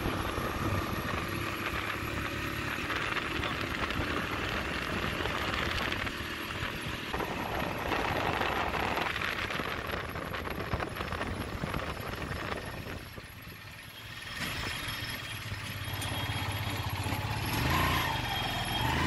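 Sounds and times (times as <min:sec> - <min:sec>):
rushing wind: 0:00.0 - 0:13.8
engine drone: 0:00.0 - 0:19.0.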